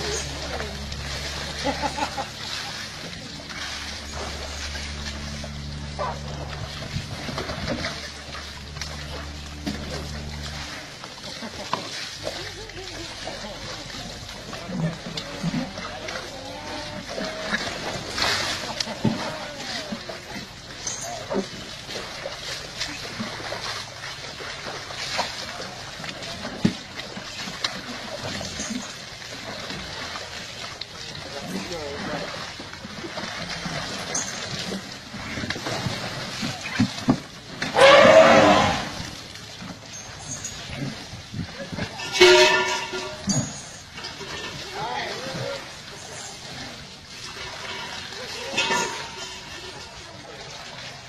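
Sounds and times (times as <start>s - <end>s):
steady low hum: 0.0s - 37.8s
water splashing in tub: 0.0s - 51.0s.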